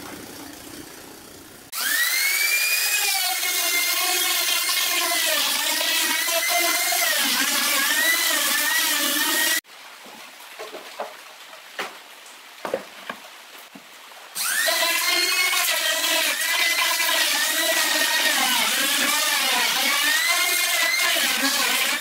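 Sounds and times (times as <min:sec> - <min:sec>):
router whining through plywood: 0:00.0 - 0:09.6, 0:14.4 - 0:22.0.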